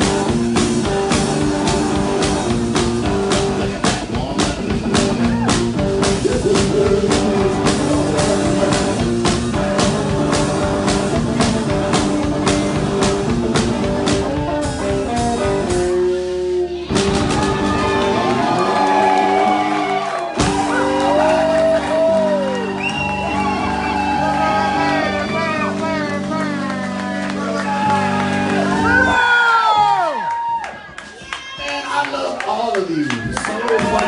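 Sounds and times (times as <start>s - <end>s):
kick and snare drum beat: 0.0s - 15.8s, 20.4s - 20.8s
electric guitar playing rock: 0.0s - 30.1s.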